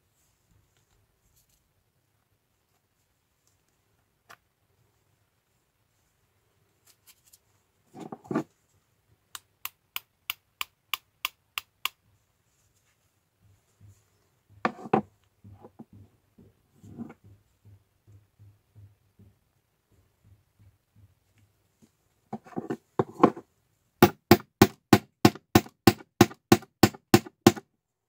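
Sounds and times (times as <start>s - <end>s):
metal tool knocking on workbench: 14.7s - 16.1s, 22.4s - 23.4s.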